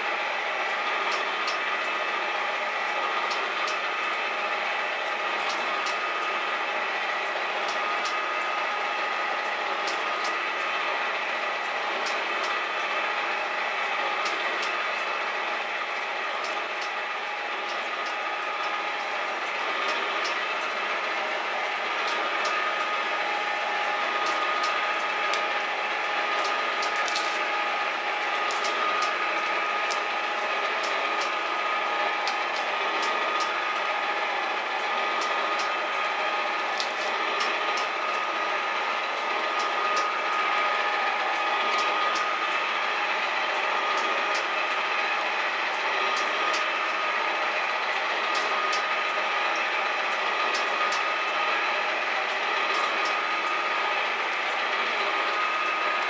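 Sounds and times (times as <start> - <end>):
metal shaper machine running: 0.0 - 56.0
sharp machine clicks: 47.8 - 56.0.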